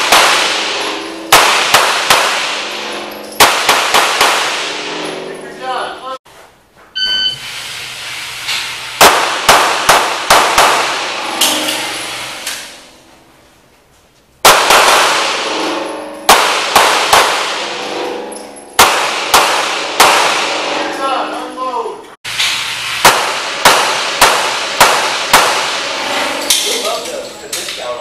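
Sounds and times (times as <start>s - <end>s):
handgun shots echoing indoors: 0.0s - 5.2s, 9.0s - 12.8s, 14.4s - 20.7s, 22.4s - 26.7s
short beep: 7.0s - 7.4s.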